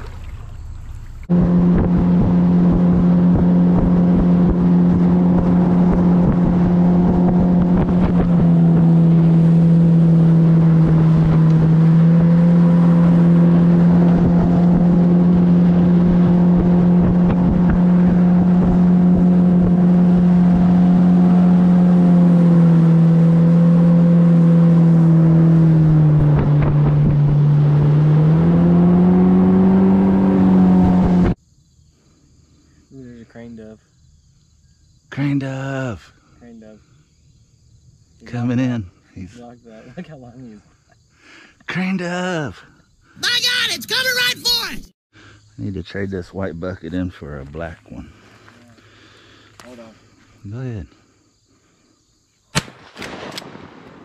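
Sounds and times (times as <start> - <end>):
outboard motor running: 0.0 - 31.3.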